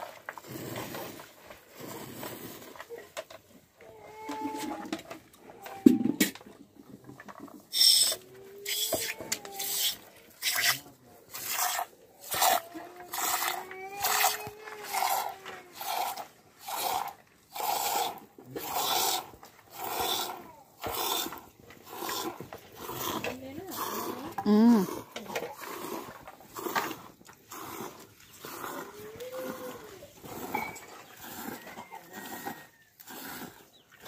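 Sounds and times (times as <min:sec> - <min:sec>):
milk squirting into metal cup: 0:07.4 - 0:24.0.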